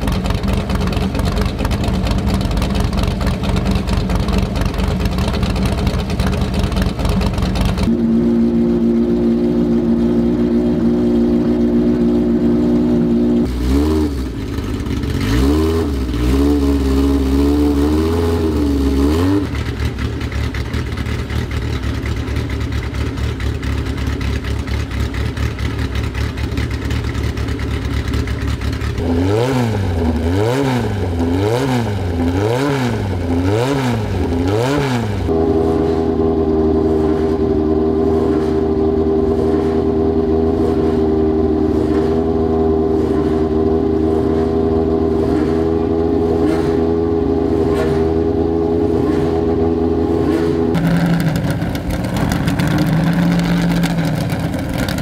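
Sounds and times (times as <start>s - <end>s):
race car engine idling: 0.0s - 13.6s, 14.2s - 15.4s, 19.5s - 29.0s, 50.7s - 55.0s
engine revving in throttle blips: 0.0s - 21.8s, 28.6s - 55.0s.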